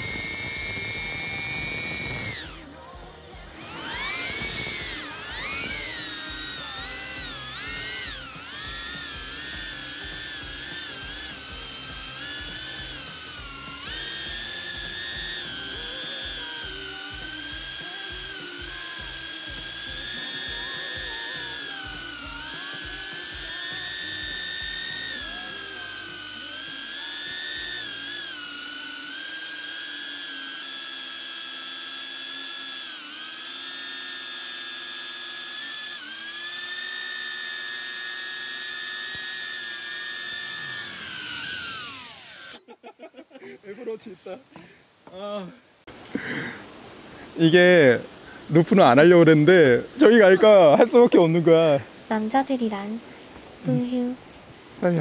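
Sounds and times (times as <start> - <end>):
drone propellers whining: 0.0 - 42.6.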